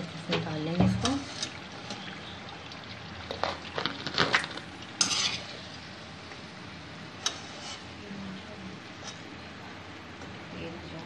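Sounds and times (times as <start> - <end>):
oil sizzling: 0.0 - 11.0
skimmer scraping metal pan: 0.3 - 2.4, 5.0 - 5.8, 7.2 - 8.0.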